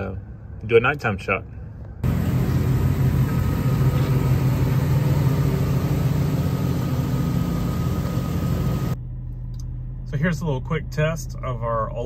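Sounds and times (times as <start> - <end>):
engine idling: 2.0 - 10.0.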